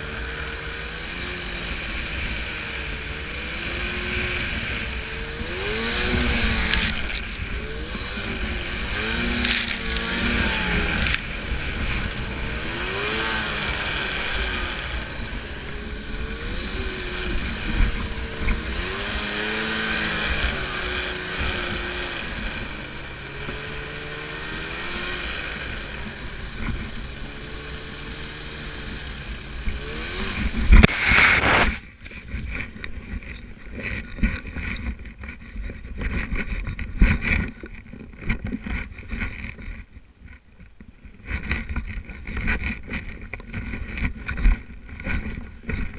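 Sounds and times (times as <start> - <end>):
snowmobile engine revving: 0.0 - 32.4
wind and spraying snow hiss: 29.8 - 32.4.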